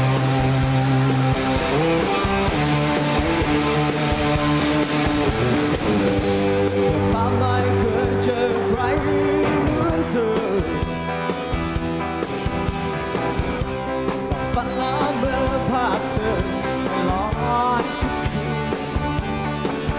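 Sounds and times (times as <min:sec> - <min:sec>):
live rock band playing: 0:00.0 - 0:19.9
man singing: 0:06.9 - 0:11.1, 0:14.3 - 0:18.8.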